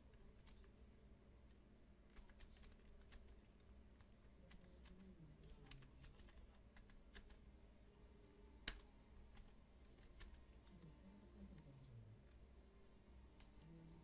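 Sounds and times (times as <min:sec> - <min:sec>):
low steady hum: 0:00.0 - 0:14.0
computer keyboard key clicks: 0:04.0 - 0:07.4, 0:08.6 - 0:10.4.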